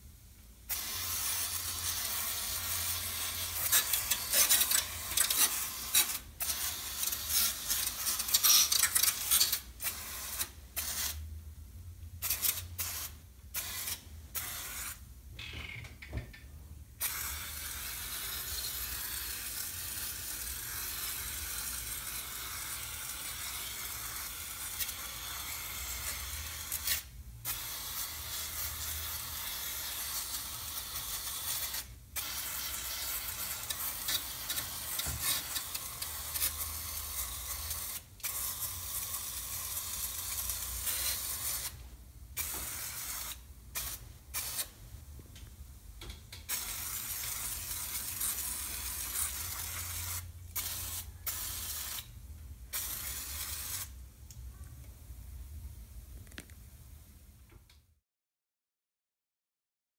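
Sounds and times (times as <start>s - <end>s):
aerosol can spraying: 0.7s - 11.2s, 17.0s - 41.8s, 42.4s - 44.8s, 46.4s - 54.0s.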